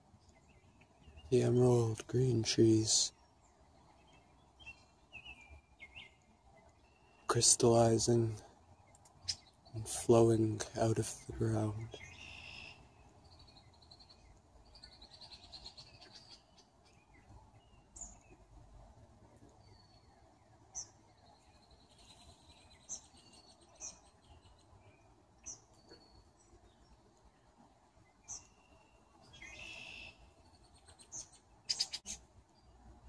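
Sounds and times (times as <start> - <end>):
bird trilling: 12.0 - 12.9, 28.3 - 32.2
short sharp bird chirps: 12.0 - 12.9, 28.3 - 32.2.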